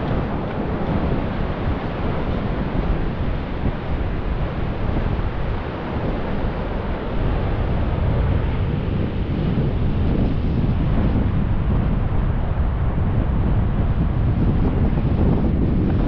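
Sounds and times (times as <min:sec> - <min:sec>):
ocean surf breaking: 0:00.0 - 0:16.0
wind rumbling on microphone: 0:00.0 - 0:16.0.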